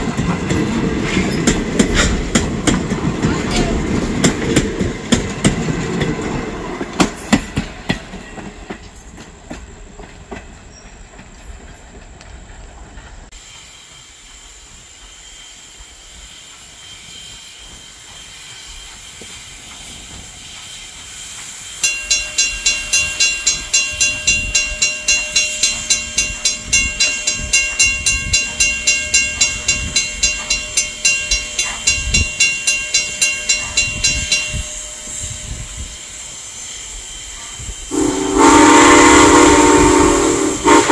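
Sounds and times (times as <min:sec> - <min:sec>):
train wheels clacking over rail joints: 0:00.0 - 0:15.2, 0:16.4 - 0:35.2
railroad crossing bell ringing: 0:21.8 - 0:37.0, 0:37.9 - 0:40.9.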